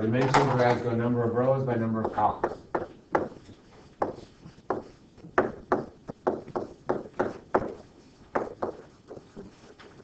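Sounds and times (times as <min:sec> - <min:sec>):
stylus tapping on surface: 0:02.0 - 0:09.5.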